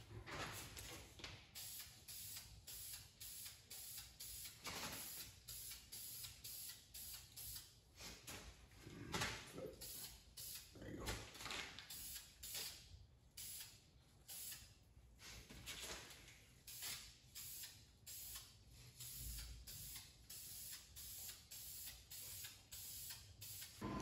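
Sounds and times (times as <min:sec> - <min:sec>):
spray can hissing in bursts: 0:01.5 - 0:07.7, 0:09.8 - 0:10.7, 0:11.9 - 0:12.8, 0:13.4 - 0:14.7, 0:16.6 - 0:23.8.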